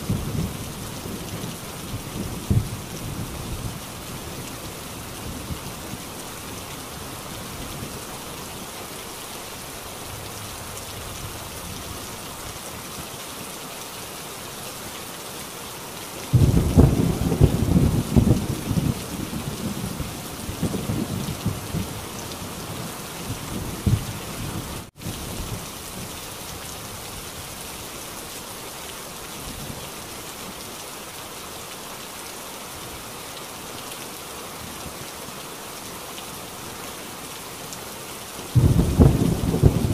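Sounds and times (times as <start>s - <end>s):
heavy rain on a tin roof: 0.0s - 39.9s
thunder clap rumbling: 16.3s - 19.9s, 38.6s - 39.9s.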